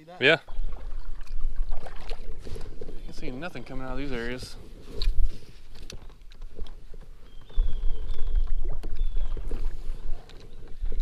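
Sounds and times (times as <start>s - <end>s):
wind rumble on microphone: 0.4s - 11.0s
fishing tackle clicks and knocks: 4.9s - 8.1s.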